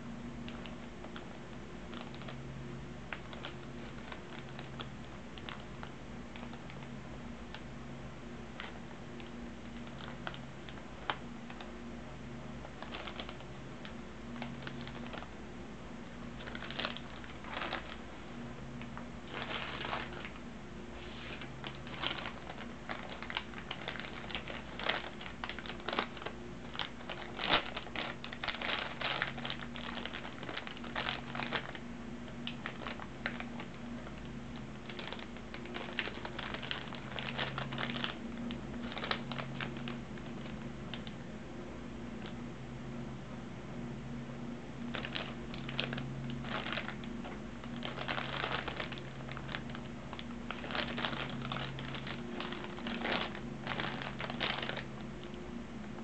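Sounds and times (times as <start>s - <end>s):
faint steady hum: 0.0s - 56.0s
plastic bags crinkling: 0.5s - 2.4s, 3.1s - 6.9s, 8.6s - 11.7s, 12.6s - 15.4s, 16.1s - 41.2s, 44.9s - 56.0s
plastic parts clicking and rattling: 21.3s - 31.8s, 44.9s - 55.3s.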